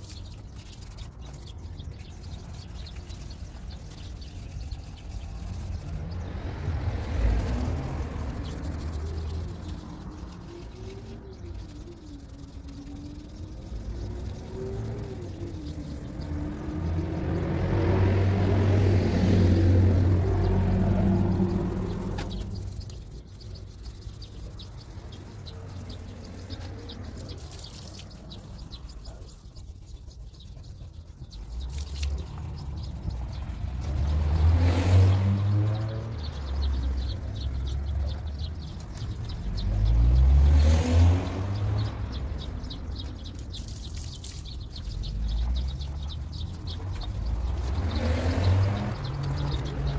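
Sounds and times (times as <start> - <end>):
vehicles accelerating past: 0.9 - 29.8, 30.4 - 49.9.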